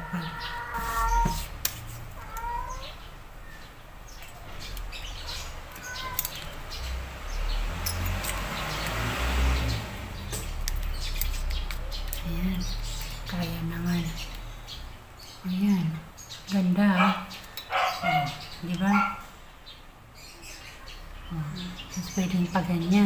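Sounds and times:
rubbing and rustling: 0.7s - 3.0s.

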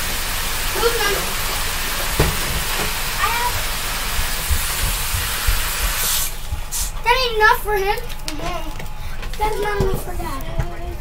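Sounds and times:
water pouring into bathtub: 0.0s - 6.4s
knock: 2.2s - 2.9s.

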